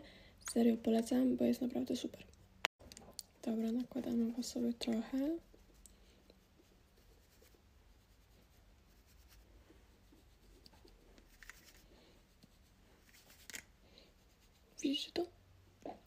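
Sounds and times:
makeup brush brushing skin: 0:03.4 - 0:15.2.

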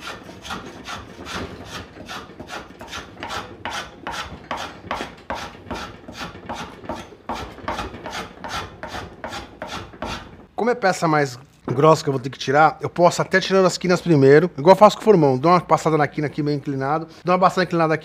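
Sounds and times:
hand plane shaving wood: 0:00.0 - 0:10.4.

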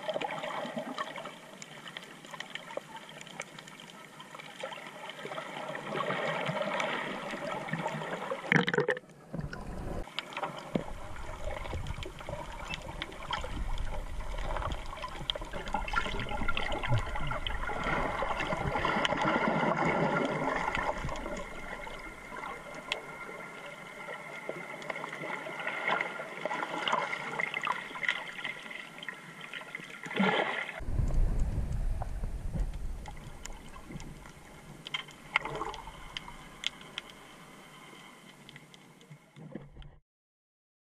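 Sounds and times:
underwater gurgling and bubbles: 0:00.0 - 0:40.0
faint steady hum: 0:09.2 - 0:19.1, 0:20.3 - 0:25.3, 0:30.8 - 0:39.4
heavy low rumble: 0:30.8 - 0:34.7.

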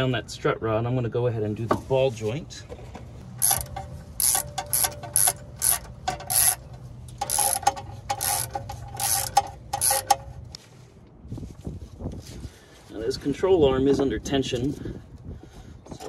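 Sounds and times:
ratchet wrench clicking: 0:03.3 - 0:10.4.

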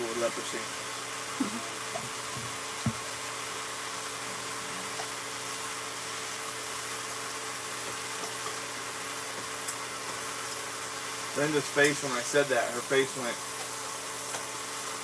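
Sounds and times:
meat sizzling in a frying pan: 0:00.0 - 0:15.0
short thump: 0:02.4 - 0:03.1.

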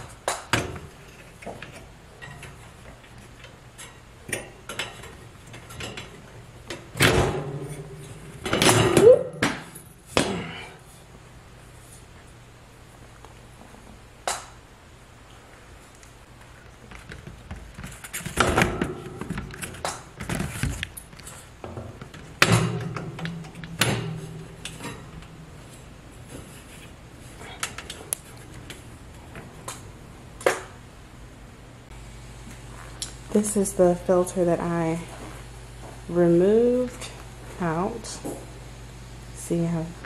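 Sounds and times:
air filter rustling and scraping: 0:00.8 - 0:08.7, 0:15.8 - 0:29.6.

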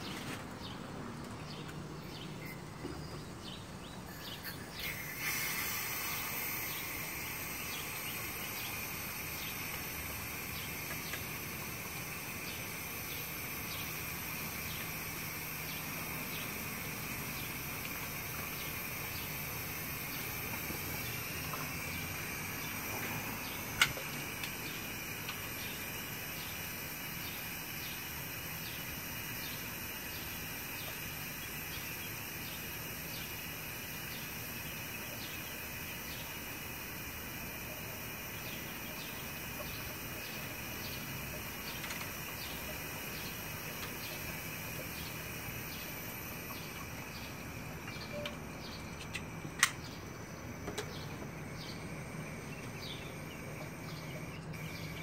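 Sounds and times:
insect chorus: 0:01.5 - 0:55.0
sharp click: 0:49.0 - 0:50.0.

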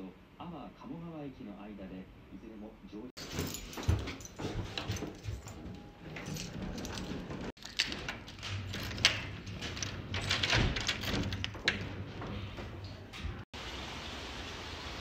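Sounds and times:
key jangling on tag: 0:03.2 - 0:11.8
metallic lock clicks: 0:06.2 - 0:11.9.

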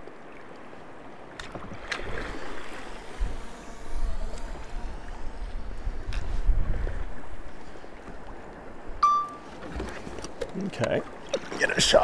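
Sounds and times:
paddle strokes splashing water: 0:00.0 - 0:12.0
wind buffeting microphone: 0:02.0 - 0:09.0.

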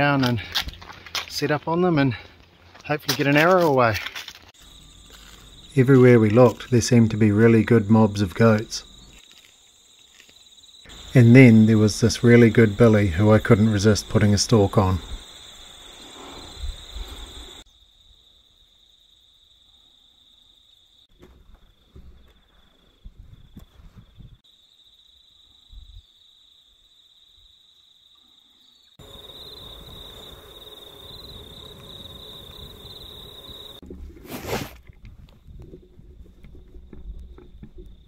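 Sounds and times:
insects buzzing: 0:04.4 - 0:33.8.

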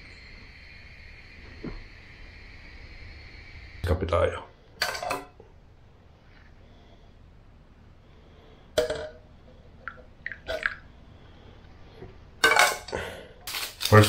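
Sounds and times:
metal pot clanking: 0:04.8 - 0:05.4, 0:12.4 - 0:12.9.

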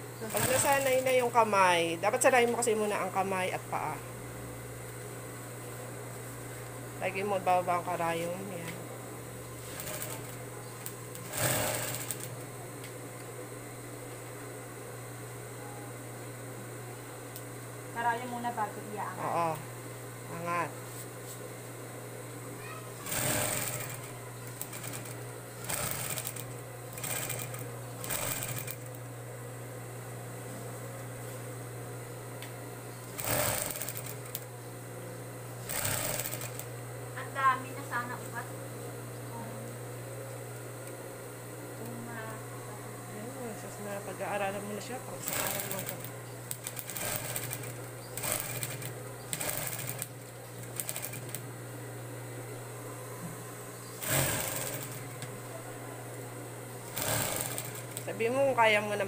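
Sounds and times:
motor humming: 0:00.0 - 0:14.5, 0:21.8 - 0:30.3, 0:31.8 - 0:59.0
sewing machine stitching: 0:00.2 - 0:01.2, 0:09.7 - 0:10.4, 0:11.2 - 0:12.4, 0:23.0 - 0:28.9, 0:33.1 - 0:34.4, 0:35.7 - 0:36.7, 0:45.2 - 0:50.1, 0:50.7 - 0:51.4, 0:54.0 - 0:55.0, 0:56.9 - 0:58.1.

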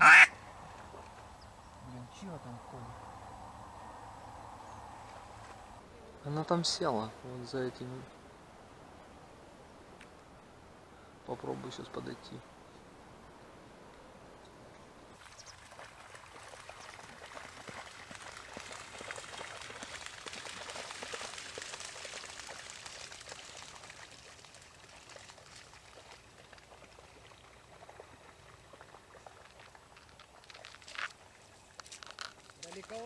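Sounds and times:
footsteps wading through water: 0:15.2 - 0:33.0.

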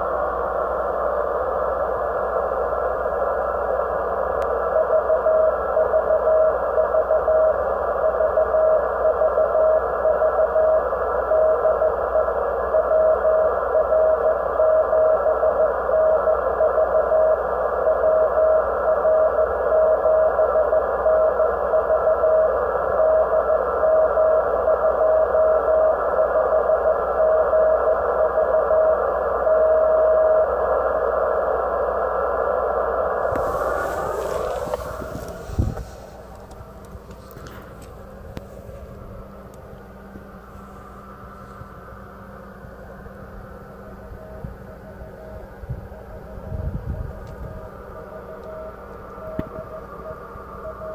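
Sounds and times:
radio receiver hiss: 0:32.3 - 0:50.9
morse code tone: 0:33.2 - 0:41.8.

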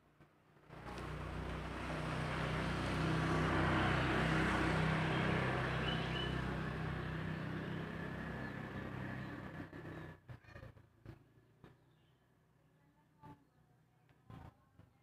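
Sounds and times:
vehicle engine passing by: 0:00.7 - 0:10.2.

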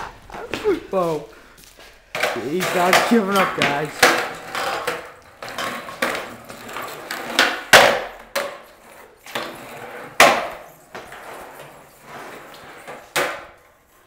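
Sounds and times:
skateboard deck clacking on floor: 0:02.1 - 0:11.3, 0:12.5 - 0:13.6
skateboard wheels rolling: 0:02.1 - 0:14.0.

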